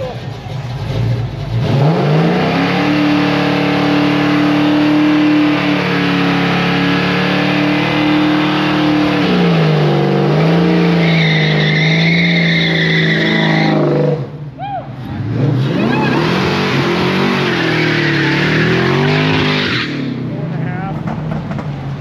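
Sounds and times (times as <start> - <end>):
tire squeal: 0.0 - 20.2
car engine revving high: 0.9 - 14.4, 15.0 - 21.6.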